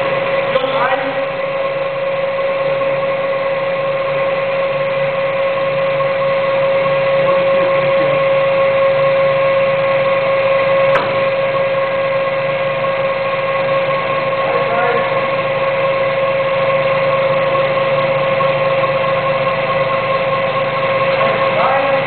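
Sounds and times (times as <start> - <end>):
machine whining and humming: 0.0 - 22.0
sharp click: 10.9 - 11.2.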